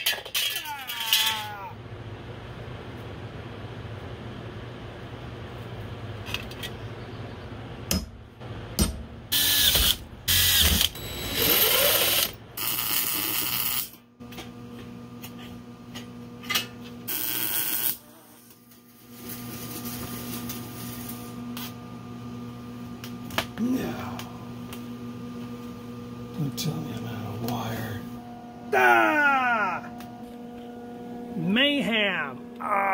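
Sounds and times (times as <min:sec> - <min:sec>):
steady low hum: 0:01.5 - 0:12.6, 0:18.0 - 0:32.9
welding arc bursts: 0:09.4 - 0:13.9, 0:17.1 - 0:18.0.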